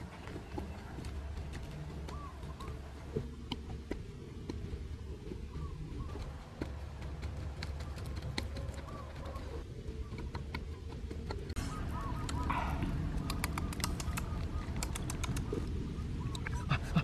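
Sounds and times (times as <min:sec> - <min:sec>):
low steady rumble: 0:00.0 - 0:17.0
faint bird chirps: 0:05.3 - 0:06.6, 0:11.6 - 0:16.7
sharp clicks and ticks: 0:06.1 - 0:09.3, 0:13.1 - 0:16.6.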